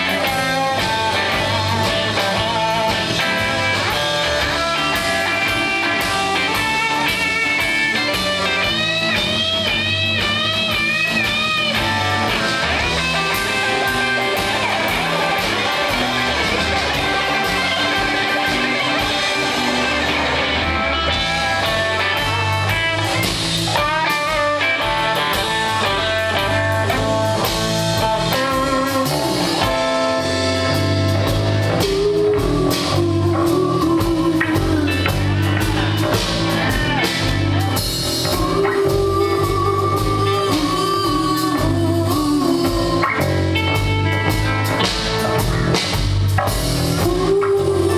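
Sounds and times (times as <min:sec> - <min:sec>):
drum kit: 0:00.0 - 0:47.9
electric bass: 0:00.0 - 0:47.9
electric guitar lead lines: 0:00.0 - 0:47.9
person singing: 0:31.6 - 0:44.4, 0:46.8 - 0:47.9.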